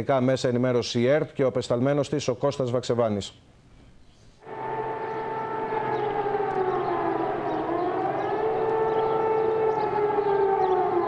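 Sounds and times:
air-raid sirens wailing: 0:04.4 - 0:11.0.

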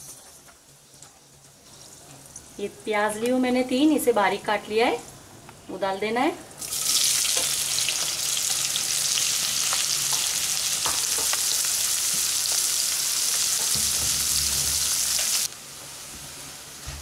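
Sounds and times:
onions sizzling in hot oil: 0:06.6 - 0:17.0.

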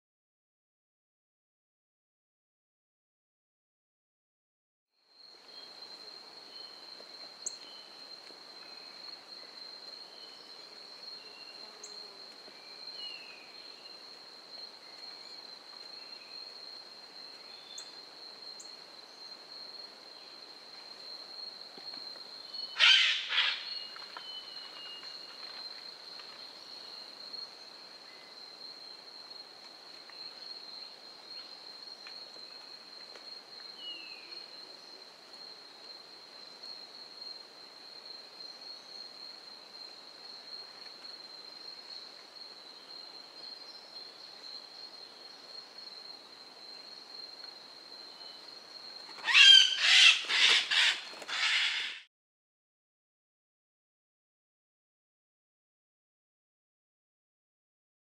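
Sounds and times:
high-pitched insect trill: 0:05.1 - 0:29.5, 0:30.1 - 0:52.1.

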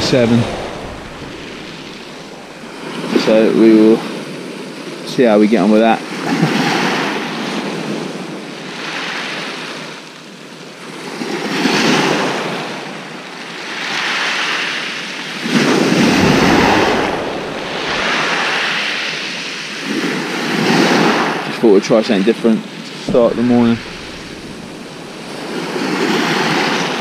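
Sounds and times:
waves breaking on shingle: 0:00.0 - 0:03.3, 0:15.4 - 0:20.2, 0:22.9 - 0:27.0.

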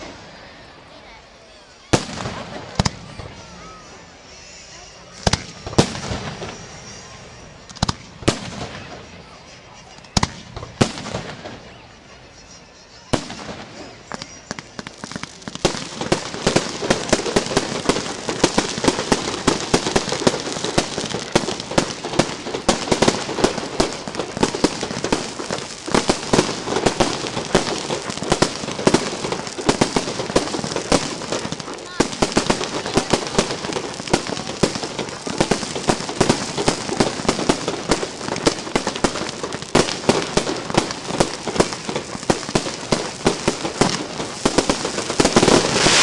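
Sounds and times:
rapid firework bangs and crackling: 0:00.0 - 0:12.1, 0:13.1 - 0:46.0
firework shell bursts: 0:34.8 - 0:46.0.

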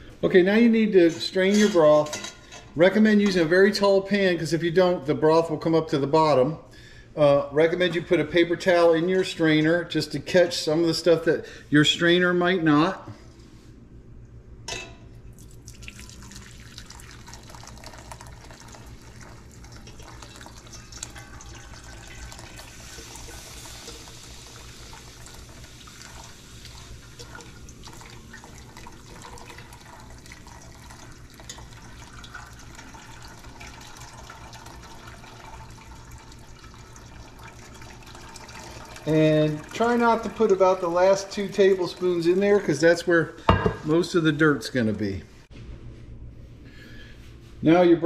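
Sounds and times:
liquid trickling into a pot: 0:15.3 - 0:42.9.

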